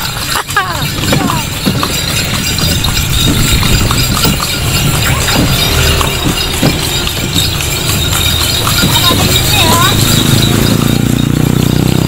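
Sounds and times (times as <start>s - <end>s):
cart rolling rumble: 0.0s - 12.0s
horse hooves clip-clopping: 0.0s - 12.0s.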